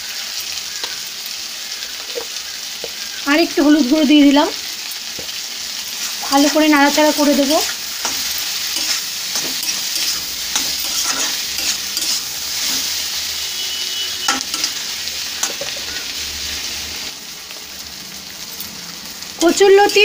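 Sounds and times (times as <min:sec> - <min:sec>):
vegetables sizzling in oil: 0:00.0 - 0:20.0
spatula scraping and knocking pan: 0:07.6 - 0:13.0, 0:15.4 - 0:16.1.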